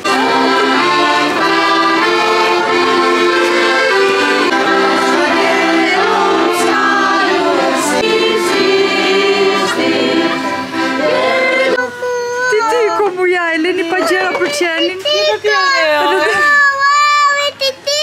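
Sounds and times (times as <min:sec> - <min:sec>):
group singing carols: 0:00.0 - 0:11.8
piano accordion playing: 0:00.0 - 0:11.9.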